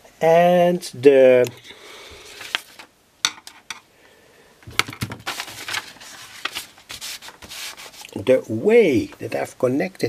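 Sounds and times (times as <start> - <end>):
paper rustling: 2.2 - 2.9, 4.7 - 8.2.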